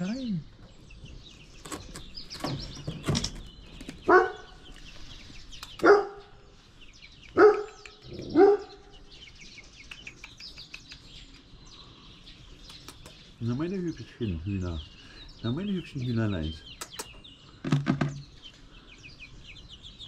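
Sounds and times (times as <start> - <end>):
faint songbird chirping: 0.0 - 20.0
dog barking: 4.1 - 4.6, 5.8 - 6.3, 7.3 - 8.8.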